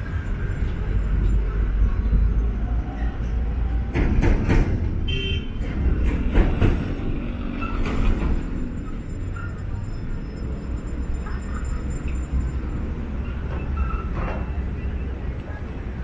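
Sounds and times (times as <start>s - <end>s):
traffic rumble: 0.0s - 16.0s
vehicles passing: 0.0s - 16.0s
car horn toot: 5.1s - 5.6s.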